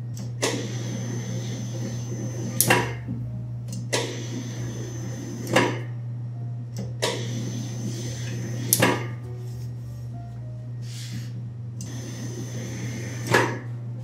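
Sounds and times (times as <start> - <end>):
dough sheeter motor hum: 0.0 - 14.0
machine clunks: 0.2 - 0.7, 2.6 - 4.4, 5.4 - 6.0, 6.8 - 7.4, 13.2 - 13.7.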